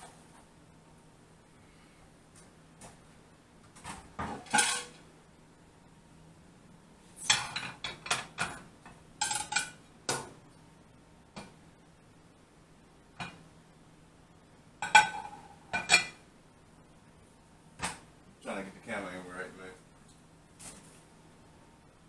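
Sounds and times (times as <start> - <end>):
dinner plates clattering: 3.8 - 5.0, 7.2 - 10.2, 14.8 - 16.2
plates knocking on metal grate: 14.8 - 16.2.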